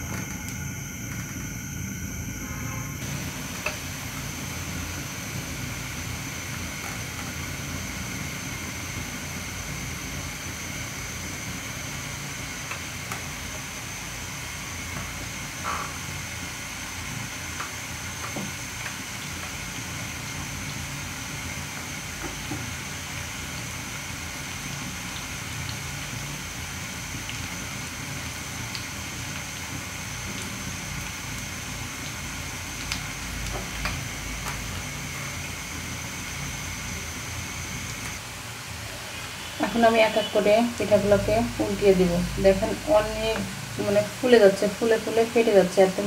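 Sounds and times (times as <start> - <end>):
faint high whine: 0.0 - 17.3, 34.1 - 45.8
oil sizzling in a pan: 0.0 - 46.0.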